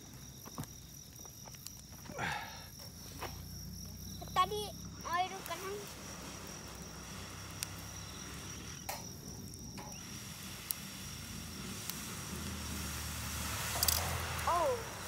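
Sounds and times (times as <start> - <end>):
high insect trill: 0.0 - 15.0
low outdoor hum: 0.0 - 15.0.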